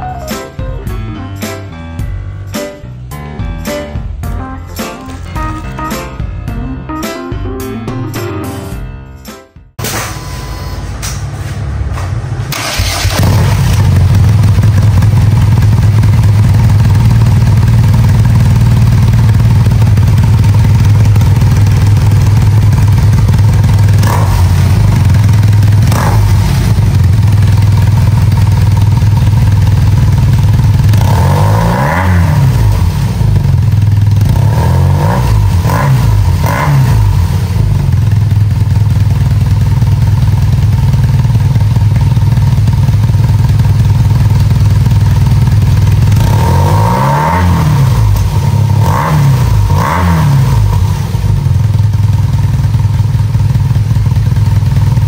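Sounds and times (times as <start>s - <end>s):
engine throttle blips: 10.1s - 39.1s
motorcycle engine idling: 12.6s - 55.0s.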